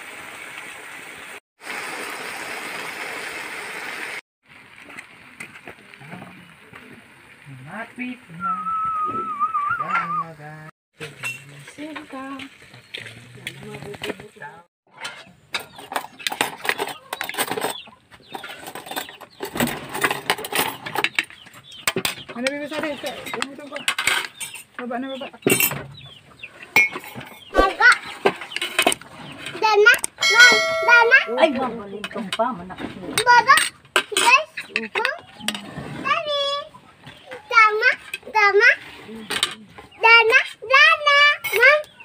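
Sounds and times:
chickens clucking: 15.2 - 19.9, 20.8 - 29.6, 34.6 - 35.7, 36.4 - 38.2.

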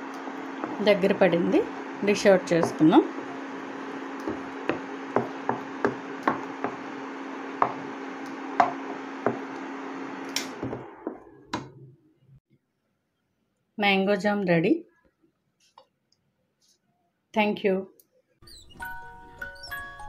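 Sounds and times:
cooktop hum and fan: 0.0 - 12.4.

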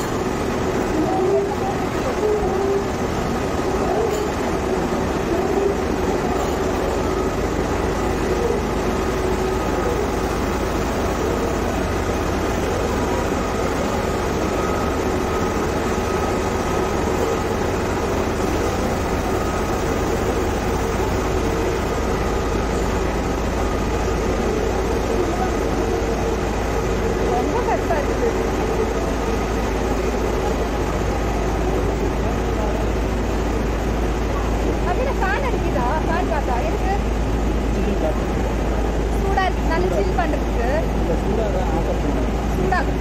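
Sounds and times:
mechanical rumble: 0.0 - 43.0.

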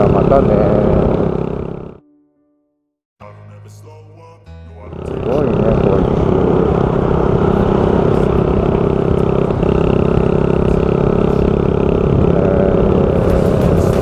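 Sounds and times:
motorcycle engine cruising: 0.0 - 2.0, 4.8 - 14.0
wind and road rush: 5.7 - 14.0.

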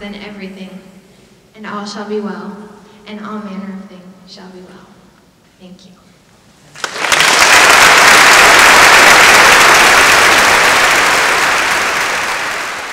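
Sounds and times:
audience applauding: 6.7 - 12.9.

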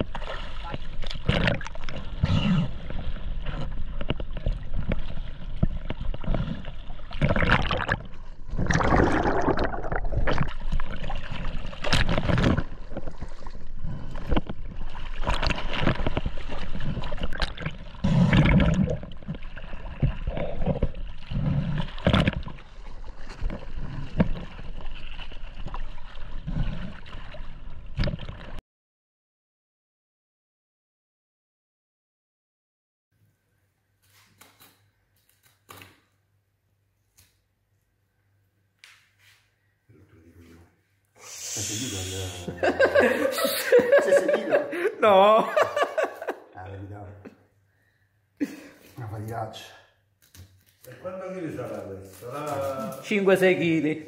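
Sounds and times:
seawater splashing and gurgling: 0.0 - 28.6.

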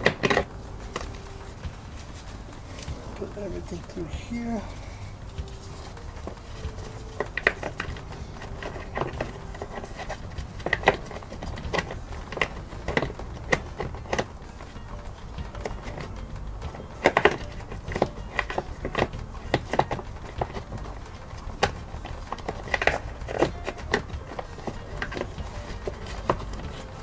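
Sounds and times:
strap buckle clicks and rattles: 5.4 - 27.0.

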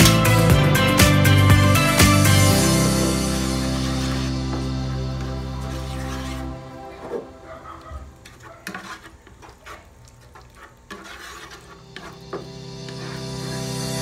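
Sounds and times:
wooden spatula scraping a pan: 3.2 - 13.3.

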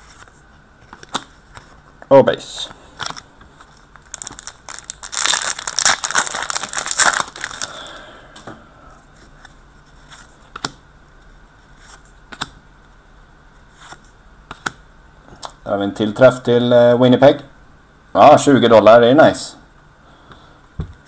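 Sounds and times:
wrapper crinkling and tearing: 3.0 - 7.9.

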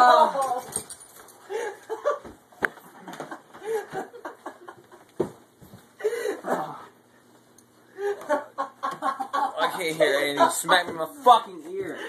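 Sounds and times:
men grunting and yelping: 0.0 - 0.7, 6.3 - 7.0
men laughing: 0.0 - 0.8, 1.4 - 5.2, 7.9 - 11.2.

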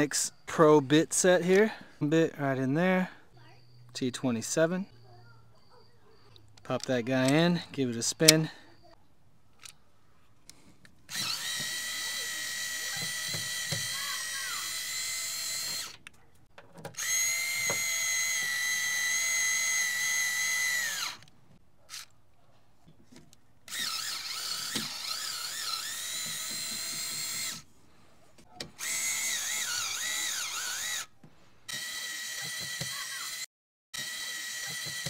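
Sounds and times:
power screwdriver motor whine: 11.1 - 16.0, 17.0 - 21.3, 23.7 - 27.7, 28.7 - 31.1, 31.7 - 35.0.

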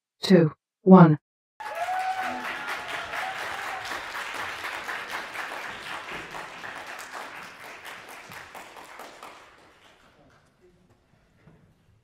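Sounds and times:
audience applauding: 1.6 - 10.6.

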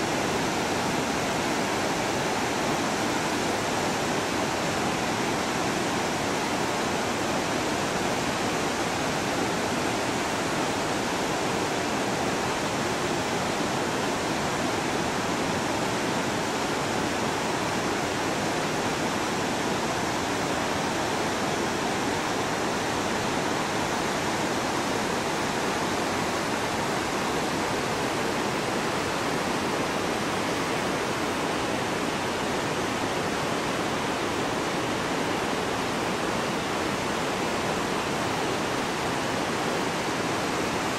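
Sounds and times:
river rushing over boulders: 0.0 - 40.9.

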